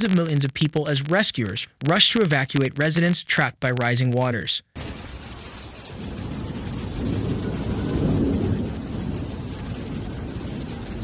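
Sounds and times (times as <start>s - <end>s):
floodwater rushing: 4.8s - 11.0s.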